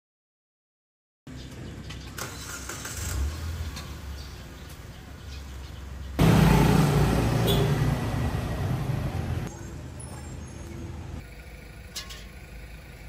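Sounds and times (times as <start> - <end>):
low street background: 1.3 - 13.0
motor scooter engine: 6.2 - 9.5.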